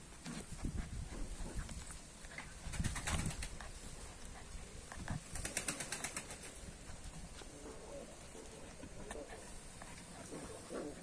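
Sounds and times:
puppy snuffling and grunting: 6.6 - 11.0.

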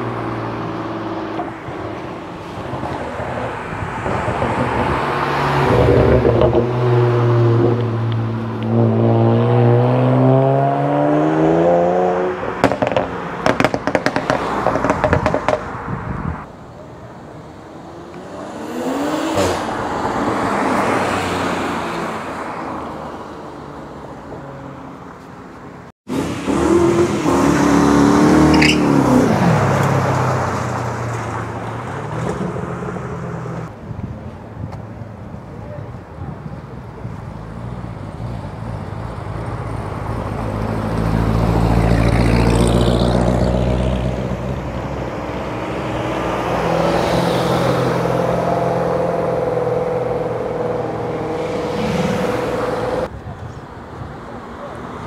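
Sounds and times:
car engine revving: 40.8 - 53.1.

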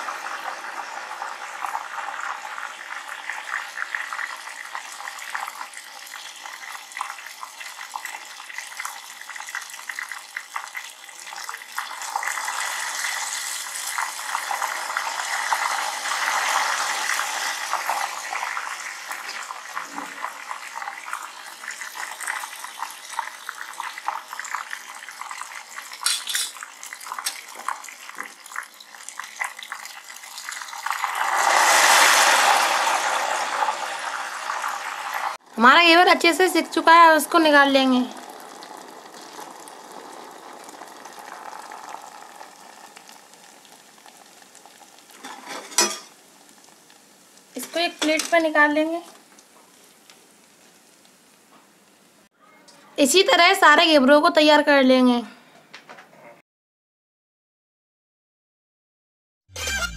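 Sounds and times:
batter frying in hot oil: 0.0 - 52.3.

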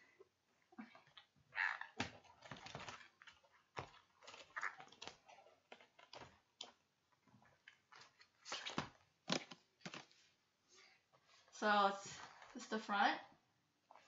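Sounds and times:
photobook handling noises: 7.5 - 10.4.

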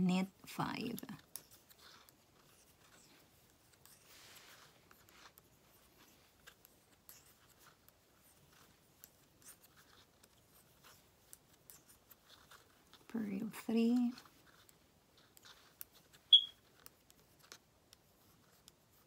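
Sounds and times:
knitting needles ticking: 4.9 - 19.0.

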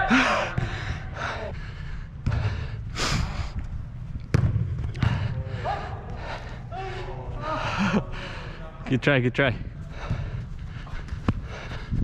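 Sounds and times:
person breathing hard: 0.0 - 3.9, 4.9 - 8.8, 9.7 - 12.0
soccer ball kick thud: 4.3 - 5.2.

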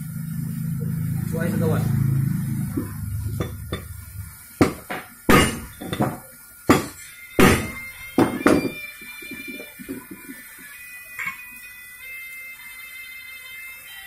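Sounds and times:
hammer striking steel pin: 2.7 - 4.0, 4.6 - 8.8.

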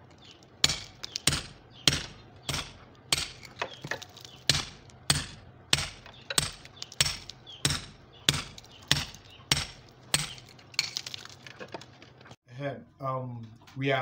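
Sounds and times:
hammer striking steel chisel: 0.6 - 11.0.

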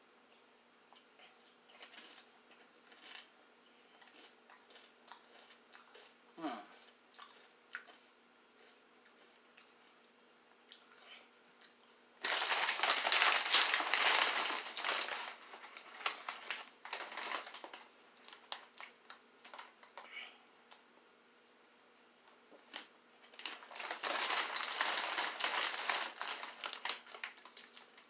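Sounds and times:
plastic chip bag crinkling: 1.8 - 3.3, 4.1 - 6.1, 12.2 - 20.0, 22.7 - 28.0.

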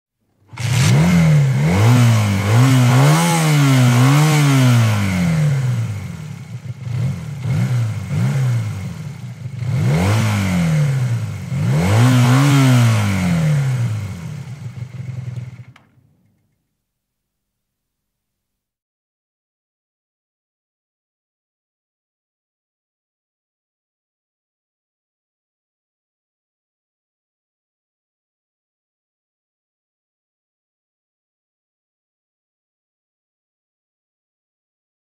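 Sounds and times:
motorcycle engine revving: 0.5 - 16.0.

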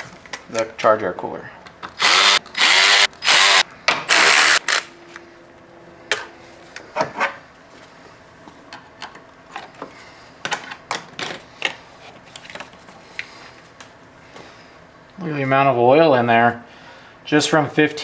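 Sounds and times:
power drill-driver running: 2.0 - 4.9.

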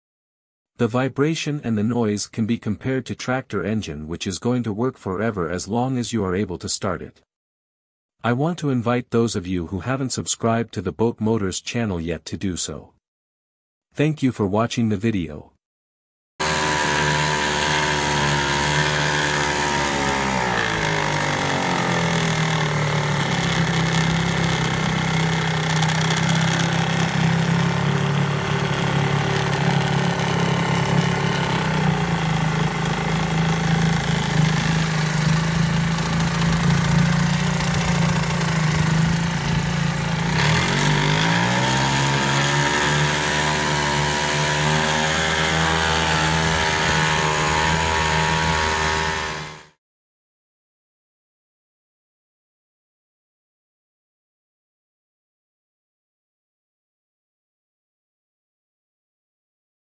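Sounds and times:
propeller churning water: 16.4 - 49.0
outboard motor running: 16.4 - 49.8.

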